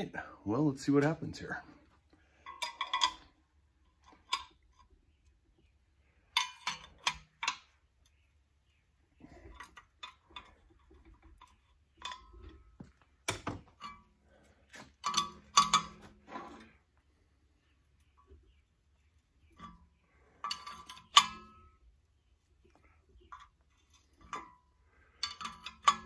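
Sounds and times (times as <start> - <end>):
metal clinks: 23.2 - 26.0.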